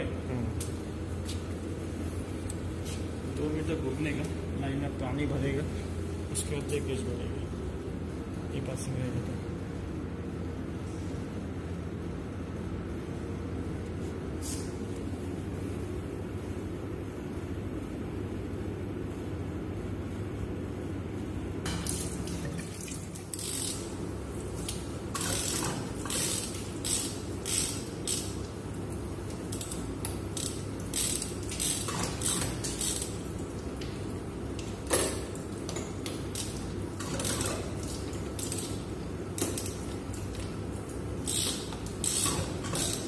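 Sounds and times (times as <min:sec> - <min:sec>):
ratchet wrench clicking: 0:23.3 - 0:23.8, 0:25.2 - 0:28.4, 0:29.5 - 0:33.1, 0:41.2 - 0:43.0.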